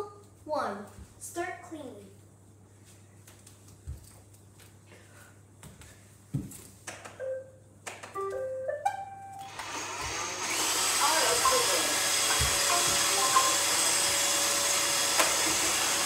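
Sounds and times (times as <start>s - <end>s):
vacuum motors whirring hiss: 9.4s - 16.0s.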